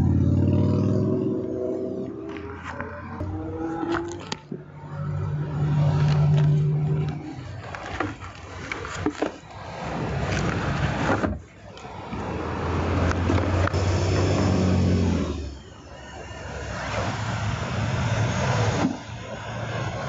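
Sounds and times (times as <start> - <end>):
low engine hum: 0.0 - 8.4
items rummaged in car trunk: 5.7 - 12.3.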